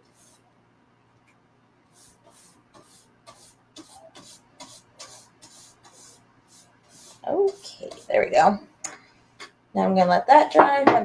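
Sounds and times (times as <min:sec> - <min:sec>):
paint brush scratchy strokes: 0:00.0 - 0:00.4, 0:01.9 - 0:08.3.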